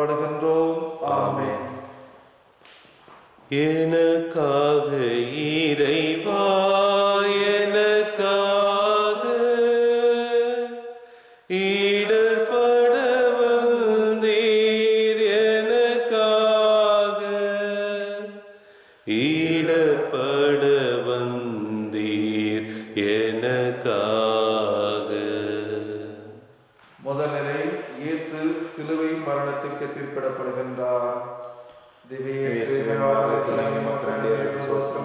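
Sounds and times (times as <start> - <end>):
person chanting a hymn: 0.0 - 2.1, 3.5 - 10.9, 11.5 - 18.4, 19.1 - 26.4, 32.1 - 35.0.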